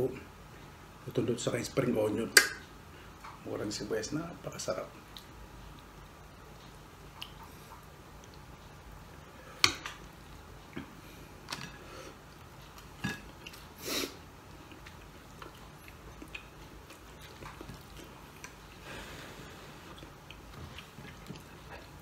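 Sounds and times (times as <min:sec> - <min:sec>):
person chewing food: 0:05.0 - 0:22.0.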